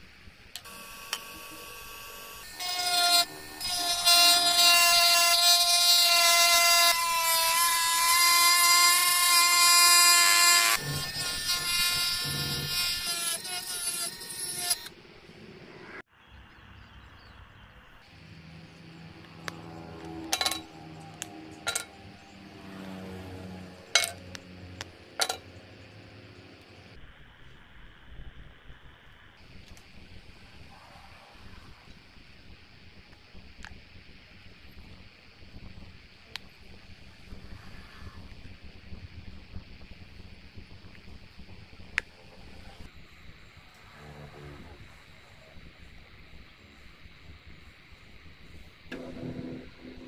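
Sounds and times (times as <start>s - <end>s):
electric rotary tool whining: 0.6s - 15.0s
low hum: 16.8s - 50.0s.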